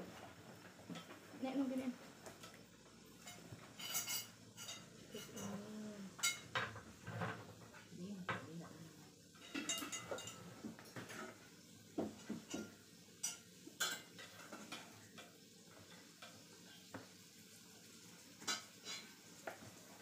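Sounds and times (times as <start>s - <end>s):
utensils clinking on plates: 3.2s - 8.5s, 9.3s - 11.4s, 12.0s - 16.4s, 18.4s - 19.2s.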